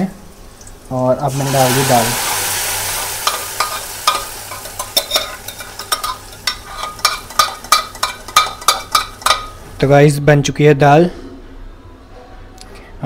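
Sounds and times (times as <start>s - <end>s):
food sizzling in hot pan: 0.3s - 9.7s
spoon scraping steel pot: 3.6s - 9.5s.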